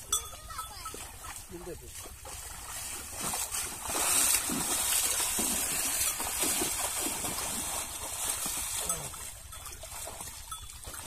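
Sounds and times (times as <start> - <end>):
water sloshing and splashing: 0.0 - 11.0.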